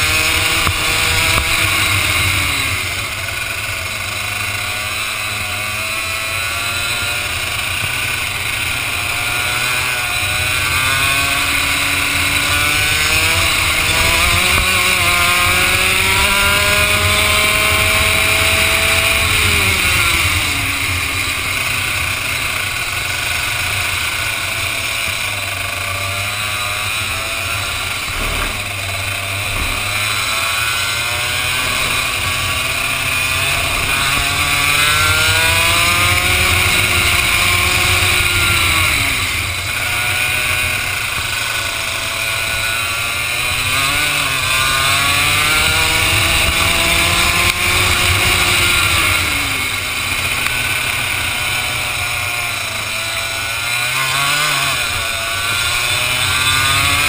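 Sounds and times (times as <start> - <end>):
kart engine accelerating: 0.0 - 57.0
steady rushing noise: 27.0 - 41.9.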